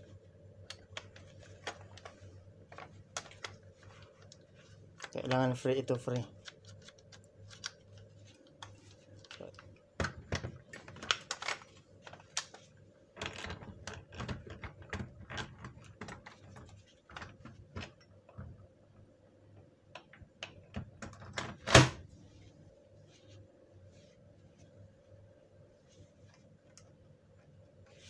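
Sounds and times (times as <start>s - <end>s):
plastic parts clicking and clattering: 0.7s - 4.4s, 8.6s - 18.6s.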